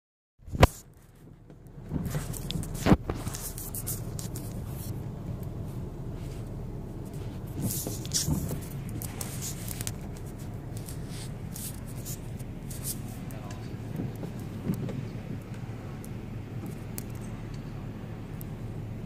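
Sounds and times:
car idling: 0.4 - 19.0.

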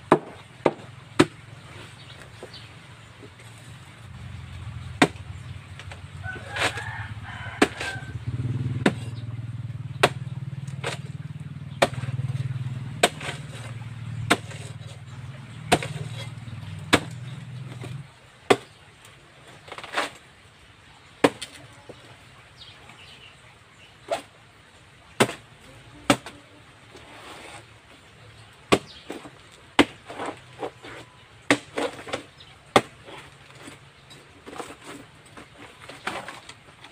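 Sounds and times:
knife chopping banana trunk: 0.1 - 2.6, 4.7 - 18.8, 21.2 - 21.6, 25.2 - 26.4, 28.7 - 33.8.

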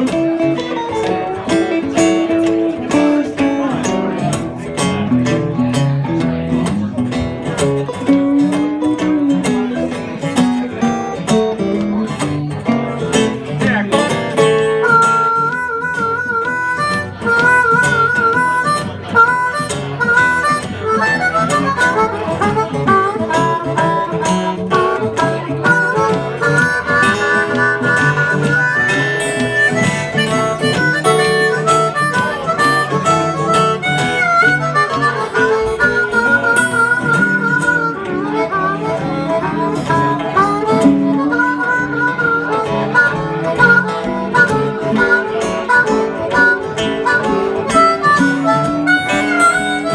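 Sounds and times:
acoustic guitars playing: 0.0 - 49.9
harmonica solo: 14.3 - 49.9.

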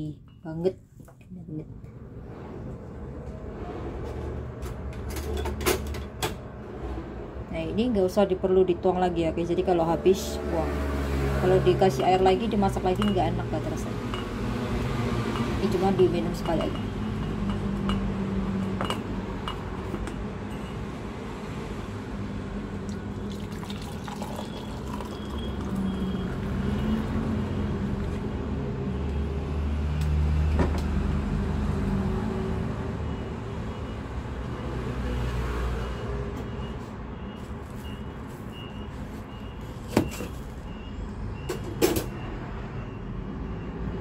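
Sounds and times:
water pouring and splashing into mug: 22.8 - 27.1.

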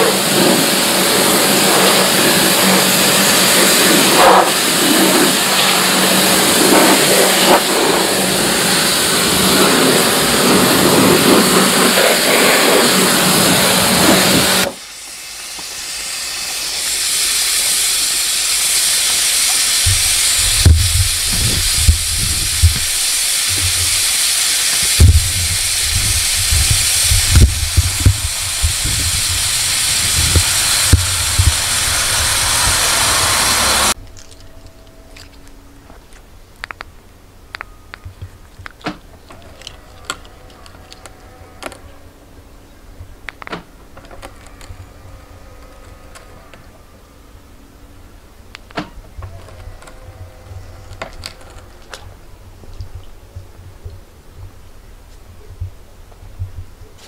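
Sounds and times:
high-pressure jet hissing: 0.0 - 34.0.

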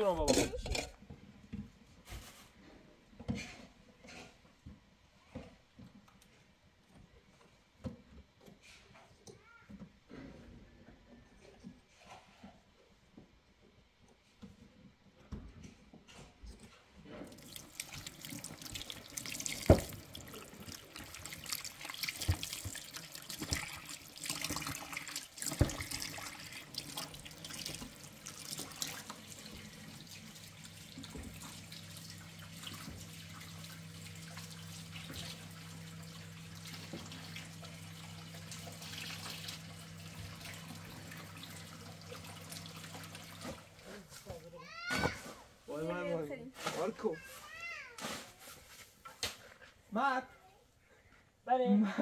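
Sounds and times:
water running and splashing: 17.2 - 44.9.

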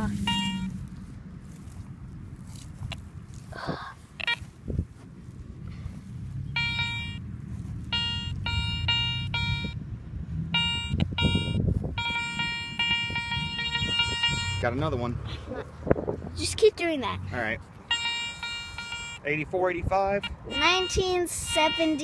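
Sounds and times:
metal detector beeping: 0.0 - 0.8, 4.2 - 4.4, 6.5 - 7.2, 7.8 - 9.8, 10.6 - 14.8, 17.9 - 19.4, 20.2 - 22.0.

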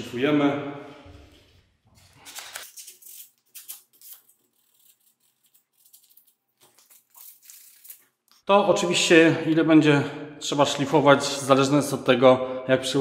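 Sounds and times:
sandpaper scratching: 2.6 - 8.1.

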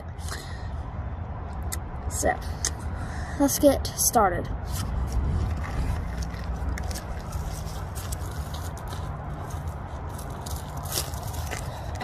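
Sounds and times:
wind rumble on microphone: 4.4 - 12.0.

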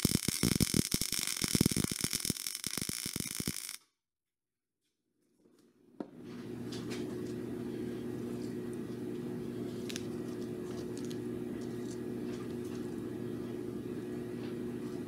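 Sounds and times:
low room hum: 5.4 - 15.0.

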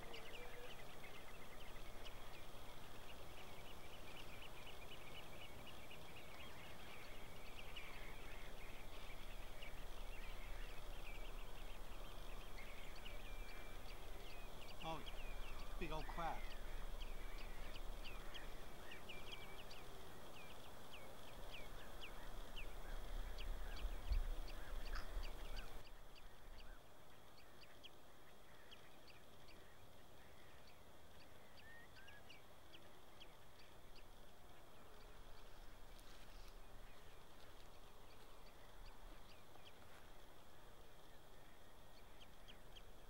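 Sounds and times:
birds calling: 0.0 - 43.0.

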